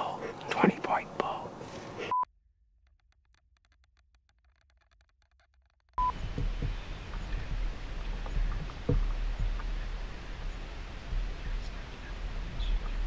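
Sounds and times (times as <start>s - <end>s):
low steady rumble: 6.0s - 13.0s.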